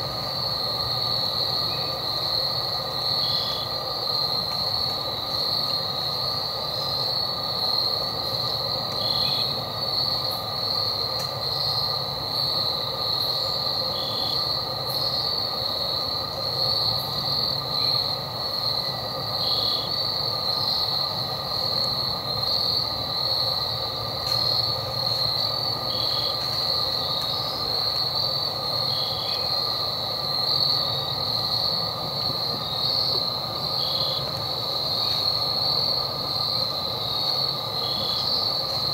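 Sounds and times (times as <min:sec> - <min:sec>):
insect chorus shrilling: 0:00.0 - 0:38.9
short insect chirp: 0:00.0 - 0:38.9.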